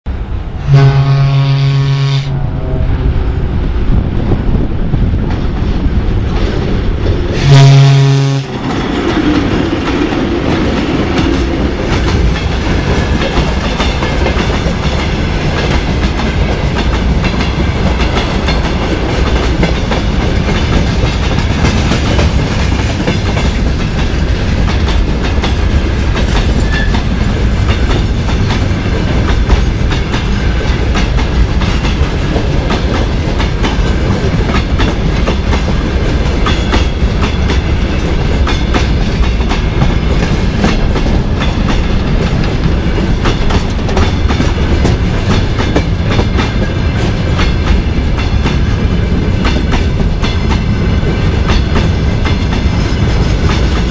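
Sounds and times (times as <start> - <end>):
locomotive horn blasts: 0.6 - 3.4, 7.4 - 8.6.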